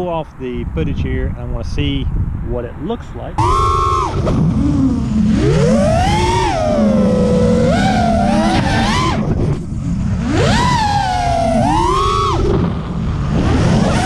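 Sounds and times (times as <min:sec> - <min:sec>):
drone motors whining: 0:03.4 - 0:14.0.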